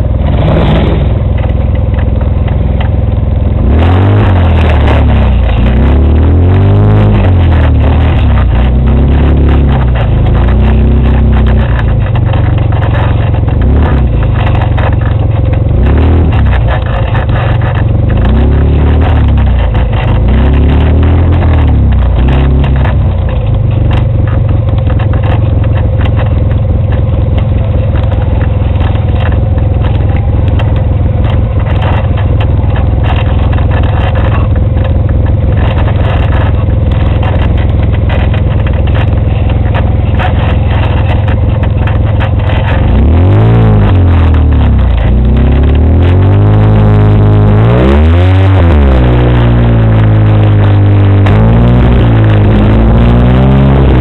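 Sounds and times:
off-road vehicle engine revving: 0.0 - 54.0
vehicle rattling over rocks: 0.0 - 54.0.

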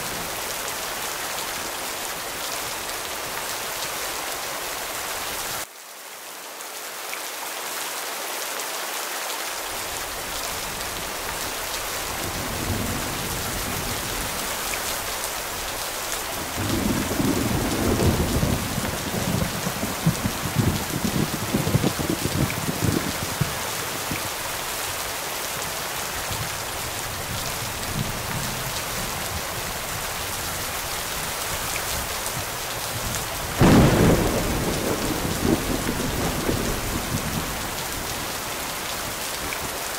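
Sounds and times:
steady rain falling: 0.0 - 39.9
low rumbling thunder: 12.0 - 15.0, 16.4 - 24.3, 33.0 - 38.7
loud thunderclap: 16.4 - 23.6, 33.5 - 38.2.

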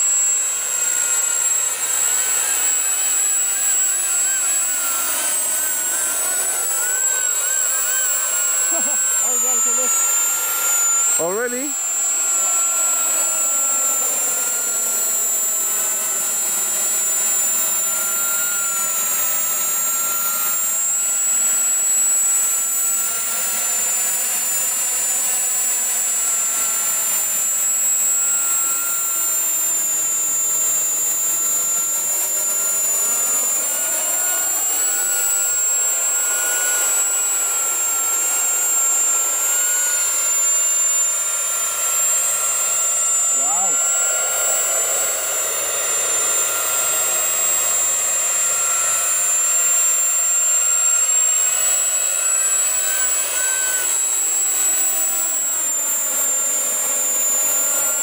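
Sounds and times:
model jet engine whine: 0.0 - 58.0.

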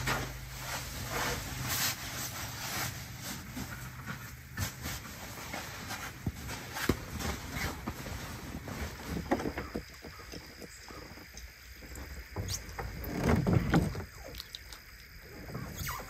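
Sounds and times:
heavy blanket rustling: 0.0 - 9.7.

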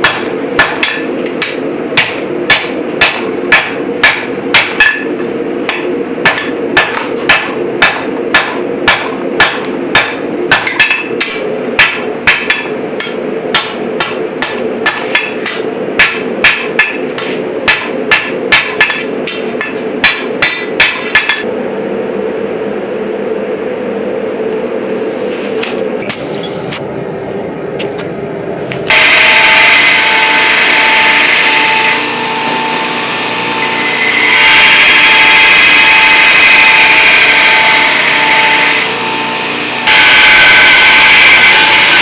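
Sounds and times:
hammer striking steel on anvil: 0.0 - 21.5
steady low rumble: 21.4 - 28.9.

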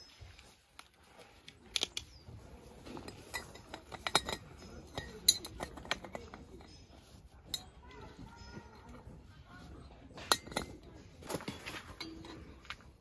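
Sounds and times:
dishes and utensils clinking: 2.8 - 9.0, 10.1 - 13.0.

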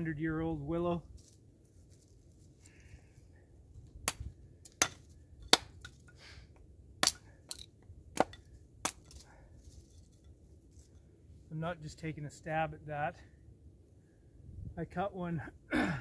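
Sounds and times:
hatchet chopping wood: 4.0 - 6.0, 7.0 - 9.2.

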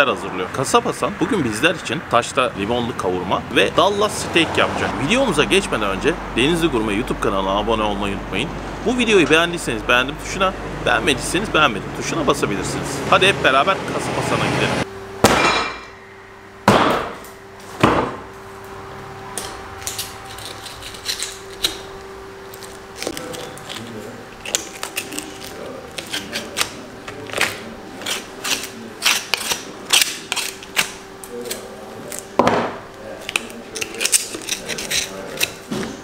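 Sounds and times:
knife clicks knocks and scrapes: 33.2 - 35.9.

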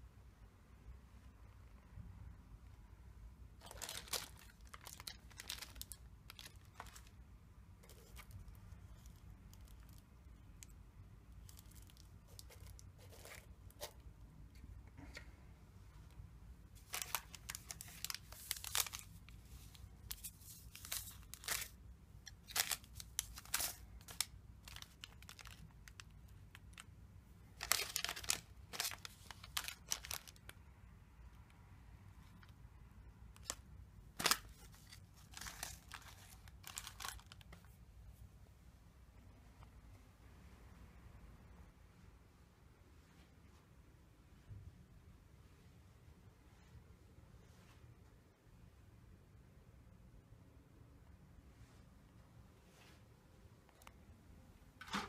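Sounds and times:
wrappers and sachets crinkling: 3.6 - 7.2, 7.8 - 10.1, 11.3 - 14.0, 16.8 - 30.6, 33.3 - 37.8.

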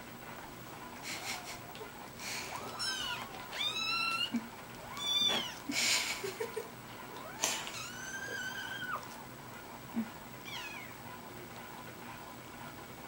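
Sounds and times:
kittens mewing: 2.4 - 5.7.

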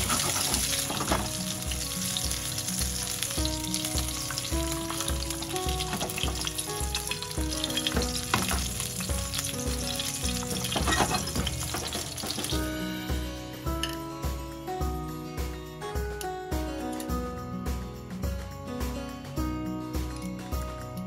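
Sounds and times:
fish sizzling in hot oil: 0.0 - 12.8.

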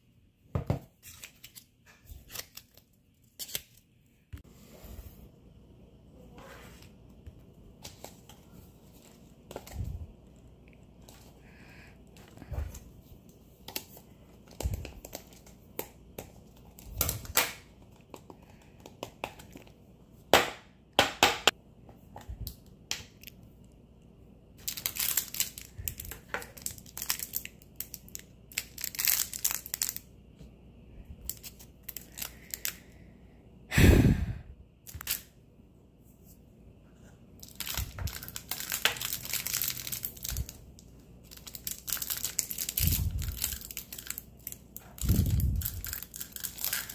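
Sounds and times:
plastic bag crackle: 24.6 - 30.0, 37.4 - 46.9
plastic bag crinkling: 24.6 - 30.0, 37.4 - 46.9.

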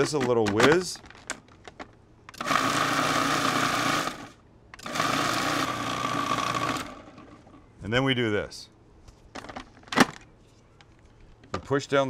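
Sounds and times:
food processor motor whirring: 2.4 - 7.3.

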